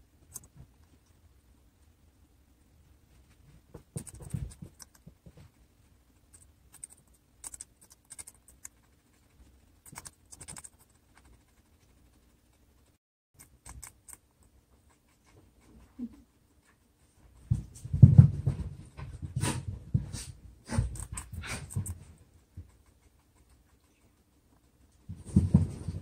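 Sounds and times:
guinea pig chewing crunchily: 0:03.6 - 0:17.8, 0:20.3 - 0:25.8.

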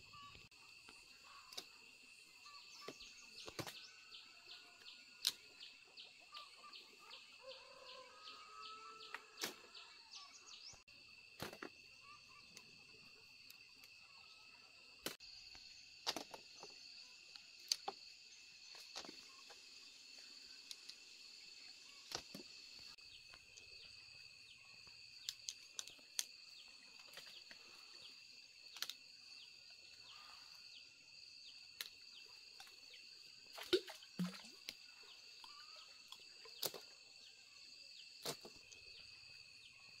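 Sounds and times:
insect chorus: 0:00.0 - 0:40.0
branches snapping and clicking: 0:05.2 - 0:05.4, 0:28.7 - 0:29.0.

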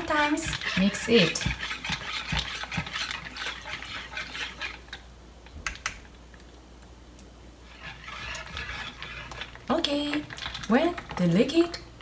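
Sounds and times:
whisk scraping in a bowl: 0:00.0 - 0:05.0, 0:07.6 - 0:11.8.

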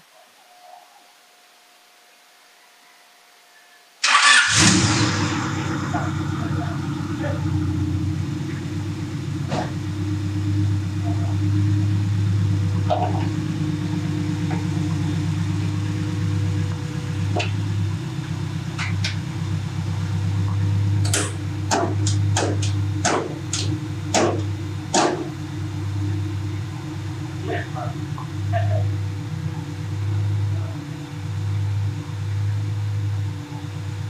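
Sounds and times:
car engine idling: 0:04.0 - 0:34.0
hood clicking and knocking shut: 0:21.0 - 0:25.4.

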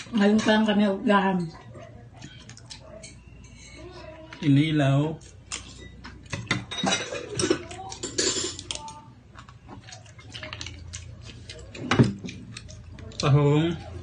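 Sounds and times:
cutlery clinking on a plate: 0:05.5 - 0:08.9.

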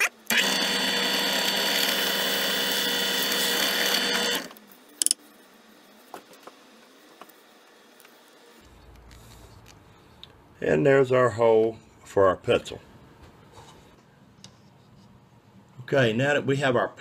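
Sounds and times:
drill press whining: 0:00.3 - 0:04.6.

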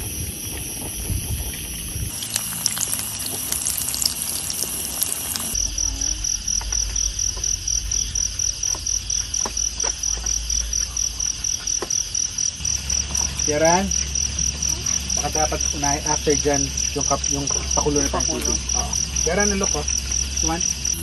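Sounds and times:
cricket chirping: 0:00.0 - 0:21.0
chicken frying in oil: 0:01.4 - 0:05.6.

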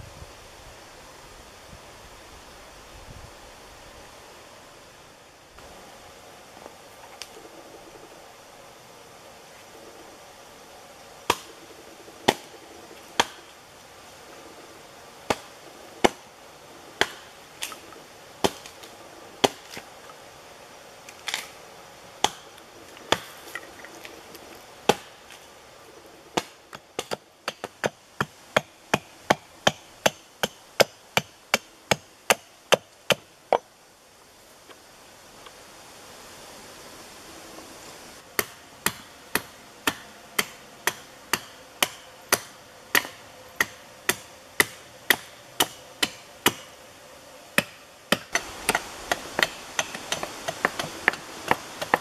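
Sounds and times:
hatchet chopping wood: 0:11.3 - 0:11.5, 0:12.2 - 0:12.6, 0:13.2 - 0:13.5, 0:15.3 - 0:16.2, 0:17.0 - 0:17.8, 0:18.4 - 0:18.8, 0:19.4 - 0:19.8, 0:22.2 - 0:22.5, 0:23.1 - 0:23.6, 0:24.9 - 0:25.2, 0:26.4 - 0:33.7, 0:38.4 - 0:46.7, 0:47.6 - 0:52.0.

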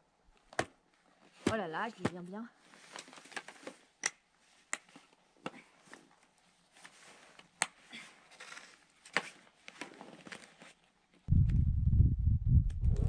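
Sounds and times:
ski gear clicks and knocks: 0:02.9 - 0:11.3.

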